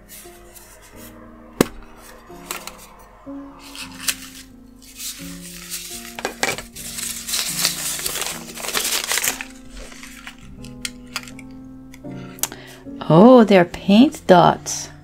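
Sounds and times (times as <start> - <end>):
quiet background music: 0.0 - 15.0
packing paper crinkling: 3.6 - 11.5.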